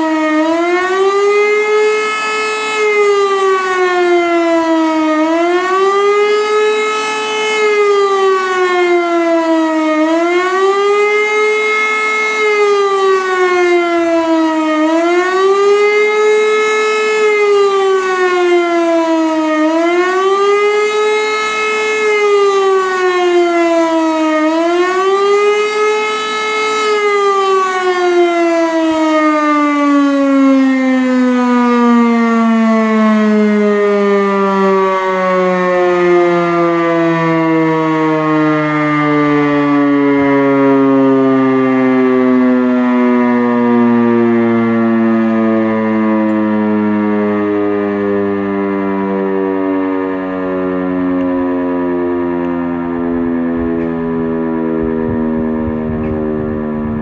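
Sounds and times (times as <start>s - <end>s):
wailing civil defence siren: 0.0s - 57.0s.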